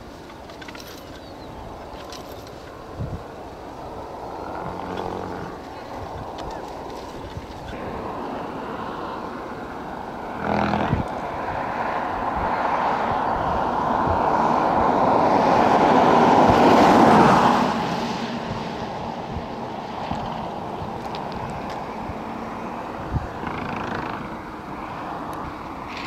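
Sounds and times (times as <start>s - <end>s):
vehicle passing: 1.8s - 26.0s.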